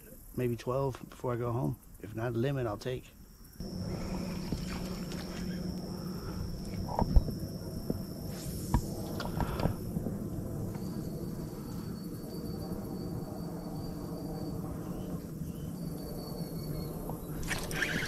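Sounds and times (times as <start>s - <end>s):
insect trilling: 1.5s - 18.0s
low steady rumble: 3.6s - 17.5s.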